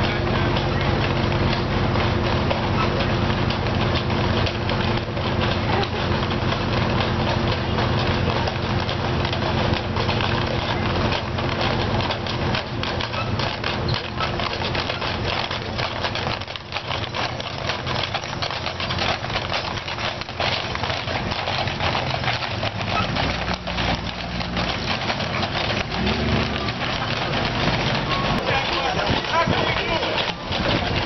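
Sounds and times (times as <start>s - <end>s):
horse hooves clip-clopping on pavement: 0.0s - 31.0s.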